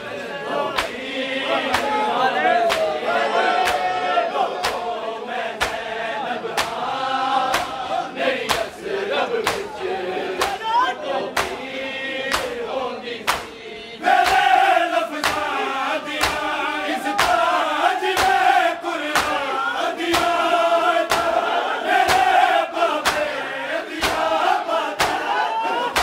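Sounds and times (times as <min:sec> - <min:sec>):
lead reciter chanting: 0:00.0 - 0:26.0
men chanting in unison: 0:00.0 - 0:26.0
chest-beating slaps: 0:00.7 - 0:01.0, 0:01.7 - 0:02.0, 0:02.6 - 0:03.0, 0:03.6 - 0:03.9, 0:04.6 - 0:05.9, 0:06.5 - 0:08.8, 0:09.4 - 0:09.8, 0:10.4 - 0:10.7, 0:11.3 - 0:11.7, 0:12.3 - 0:12.6, 0:13.2 - 0:13.6, 0:14.2 - 0:20.4, 0:21.0 - 0:26.0.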